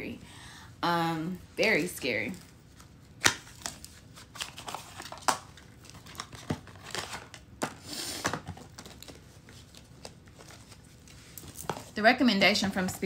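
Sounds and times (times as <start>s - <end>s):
cards rustling: 2.3s - 12.0s
cards snapping and slapping: 3.2s - 9.2s.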